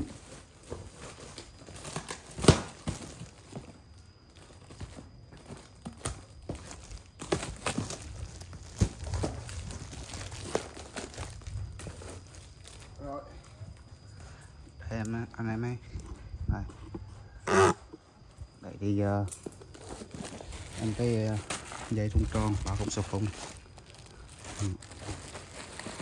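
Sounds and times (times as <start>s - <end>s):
box plastic tearing and rustling: 0.1s - 3.4s, 5.9s - 12.1s, 19.7s - 26.0s.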